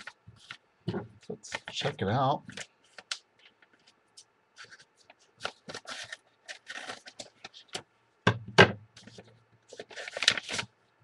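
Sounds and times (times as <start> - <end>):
paper and plastic rustling: 1.3 - 7.9, 9.0 - 10.8.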